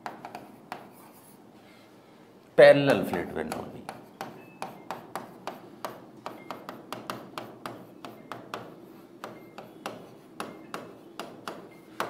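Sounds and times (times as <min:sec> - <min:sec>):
pen tapping on glass: 0:03.0 - 0:12.0.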